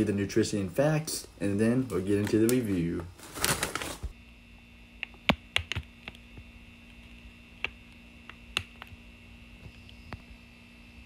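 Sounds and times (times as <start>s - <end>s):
faint steady hum: 0.0s - 11.0s
chip bag crackling: 2.1s - 4.1s.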